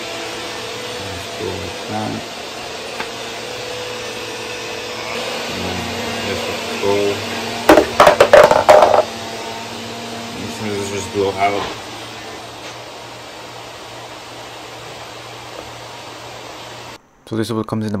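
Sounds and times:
fan-like whirring: 0:00.0 - 0:17.4
loud irregular clattering knocks: 0:07.7 - 0:09.1.

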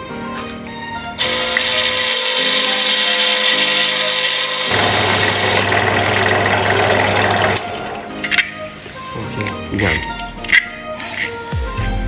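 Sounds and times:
drill press motor whine: 0:01.2 - 0:08.6.

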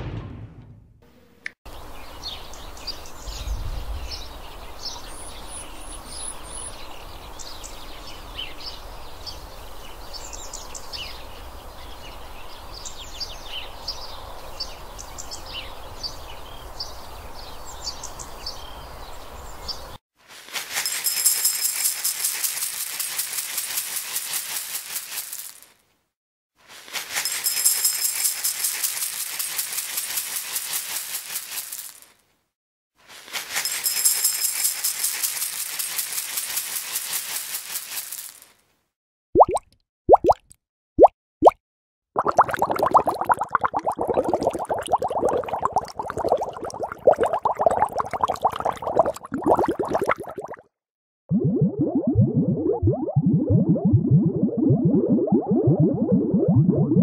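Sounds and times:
small birds chirping and twittering: 0:01.7 - 0:20.0
cat kibble poured into metal bowl: 0:20.3 - 0:25.7, 0:26.7 - 0:32.2, 0:33.1 - 0:38.5.

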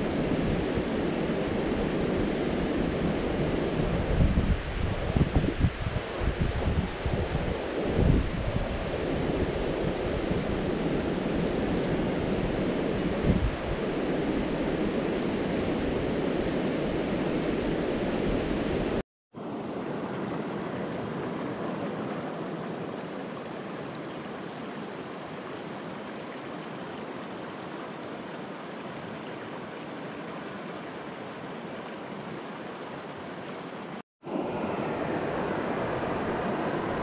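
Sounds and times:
wind: 0:00.0 - 0:37.0
rushing water: 0:19.4 - 0:37.0.

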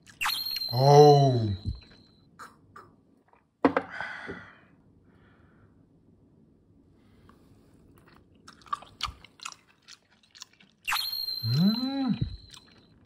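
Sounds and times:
person humming: 0:00.7 - 0:01.8, 0:11.4 - 0:12.5
person chewing with wet mouth clicks: 0:08.0 - 0:10.9, 0:12.2 - 0:13.0.

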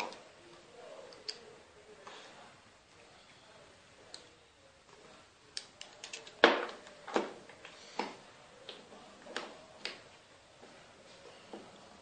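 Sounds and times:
small metal parts clicking: 0:05.6 - 0:06.4.

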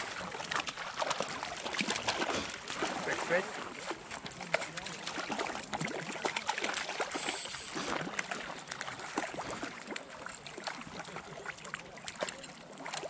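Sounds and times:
pond water splashing and trickling: 0:00.0 - 0:13.0.

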